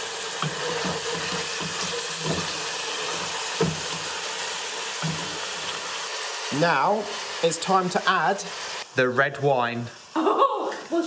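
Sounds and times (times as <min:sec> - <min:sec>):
meat sizzling in a pot: 0:00.0 - 0:11.0
wooden spoon scraping: 0:00.4 - 0:04.3.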